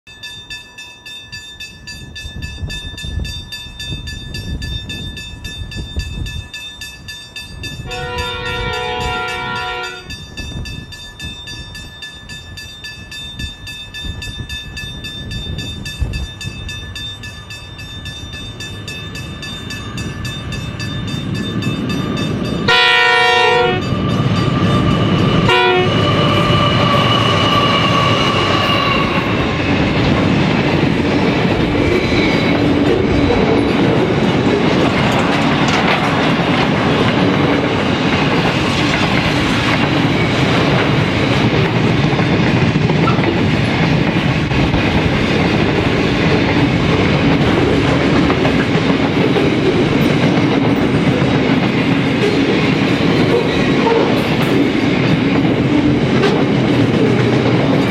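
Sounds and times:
train wheels on rails: 0.1 - 57.9
wind buffeting microphone: 1.8 - 57.9
train horn blasts: 7.8 - 10.2, 22.6 - 29.4
locomotives passing: 17.2 - 57.9.

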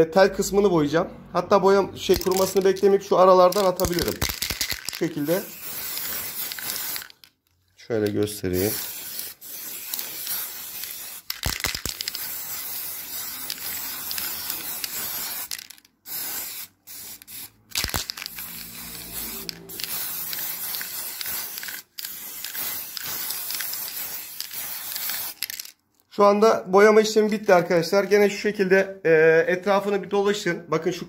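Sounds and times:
spray can hissing: 3.5 - 7.3, 8.5 - 25.7.

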